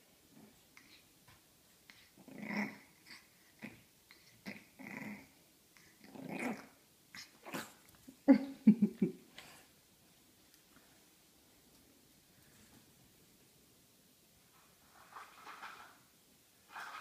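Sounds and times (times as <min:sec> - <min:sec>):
puppy growling: 0:02.2 - 0:07.9.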